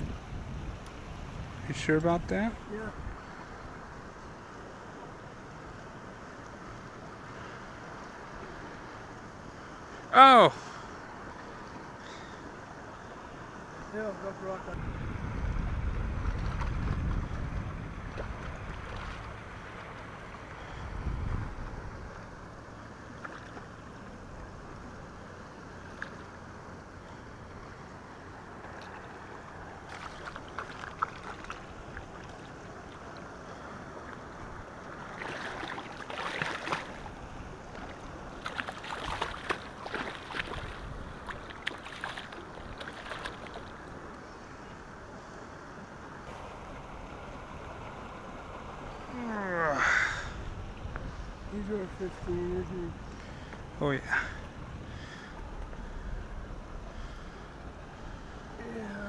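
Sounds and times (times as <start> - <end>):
water noise: 0.0 - 59.0
wind: 0.0 - 59.0
fish splashing in shallows: 28.6 - 34.0, 34.7 - 43.9.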